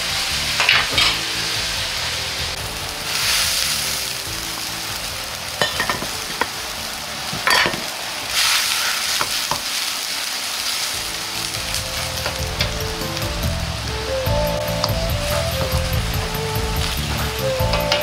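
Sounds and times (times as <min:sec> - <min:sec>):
water boiling with hiss: 0:00.0 - 0:18.0
metal ladle scraping wok: 0:00.5 - 0:01.6, 0:05.6 - 0:06.6, 0:07.3 - 0:09.7.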